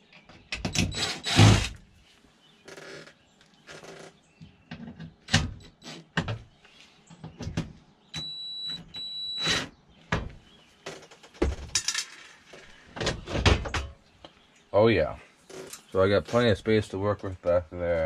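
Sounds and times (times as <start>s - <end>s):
tool and screws clattering: 11.4s - 12.4s.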